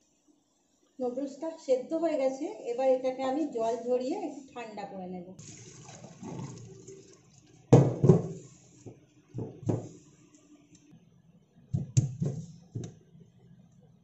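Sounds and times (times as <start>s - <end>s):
colander knocks and thuds: 7.8s - 8.4s, 9.4s - 10.0s.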